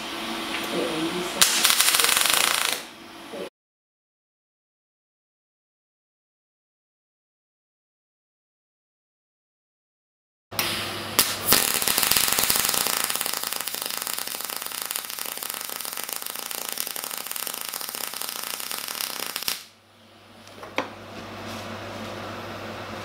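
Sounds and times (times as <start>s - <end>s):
welding arc crackling: 1.4s - 2.9s, 10.6s - 19.8s.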